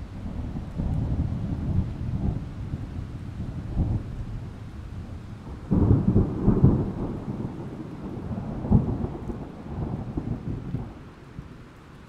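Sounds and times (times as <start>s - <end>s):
thunder rumbling: 0.0s - 11.6s
steady rain: 0.0s - 12.0s.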